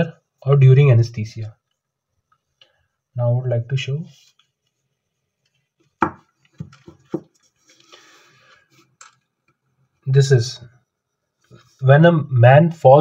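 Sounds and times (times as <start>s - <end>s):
tablet knocking on desk: 6.0s - 7.4s
soft scraping rustle: 11.4s - 11.9s.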